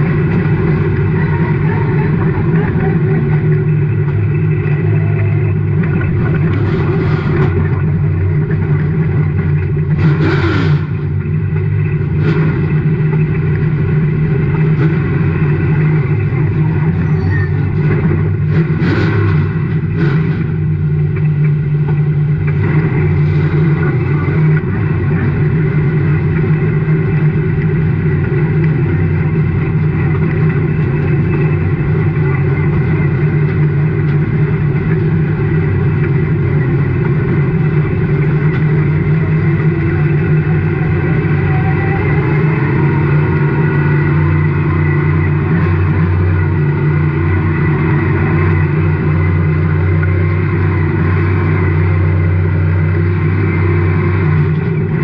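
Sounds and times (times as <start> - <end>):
race car engine roaring: 0.0 - 55.0.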